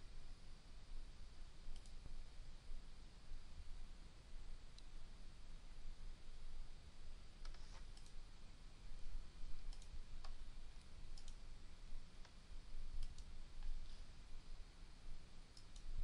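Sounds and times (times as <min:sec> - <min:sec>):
low steady hum: 0:00.0 - 0:16.0
computer mouse clicks: 0:01.7 - 0:02.1, 0:07.4 - 0:08.2, 0:09.6 - 0:11.4, 0:12.2 - 0:13.8, 0:15.6 - 0:16.0.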